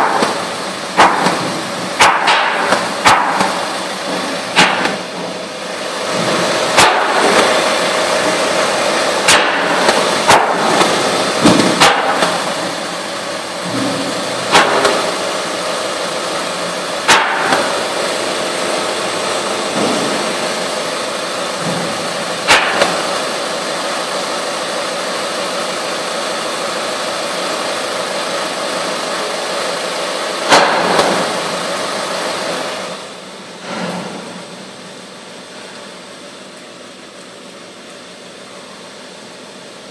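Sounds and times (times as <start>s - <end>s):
sharp mechanical knocks and clunks: 0.0s - 5.4s, 6.1s - 7.6s, 9.2s - 13.0s, 13.6s - 15.3s, 17.0s - 18.0s, 21.5s - 23.2s, 30.4s - 31.5s
elevator mechanical hum: 0.0s - 39.9s.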